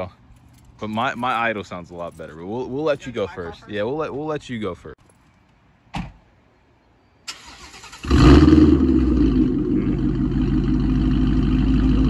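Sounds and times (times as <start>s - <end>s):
car starter cranking: 7.3s - 8.5s
car engine starting and idling: 7.3s - 12.0s.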